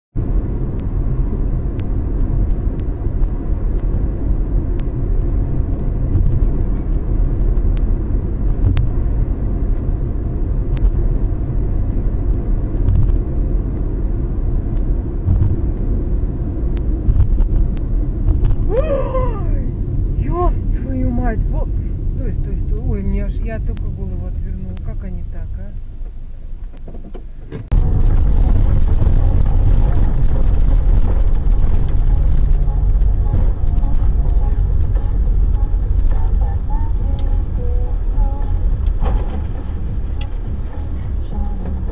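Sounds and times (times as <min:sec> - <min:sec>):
car engine and road rumble: 0:00.1 - 0:41.9
person exclaiming: 0:18.7 - 0:19.7.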